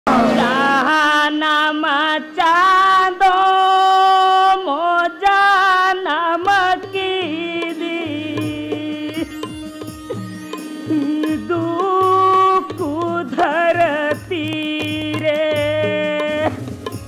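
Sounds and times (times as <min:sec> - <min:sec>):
high solo voice singing: 0:00.1 - 0:04.4.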